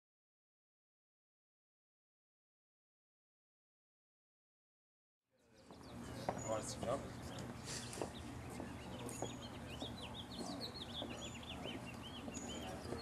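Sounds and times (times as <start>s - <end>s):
small birds chirping: 5.4s - 13.0s.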